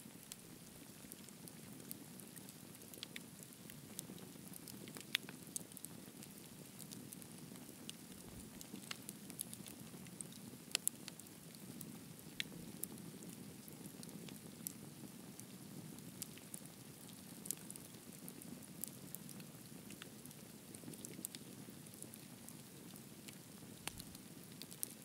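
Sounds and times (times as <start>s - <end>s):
campfire crackling: 0.1s - 25.0s
fire pops and snaps: 23.3s - 25.0s.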